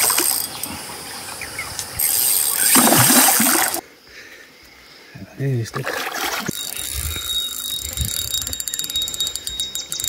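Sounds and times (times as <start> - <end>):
fishing reel gears whirring: 0.0 - 0.7, 2.0 - 3.8, 6.4 - 10.0.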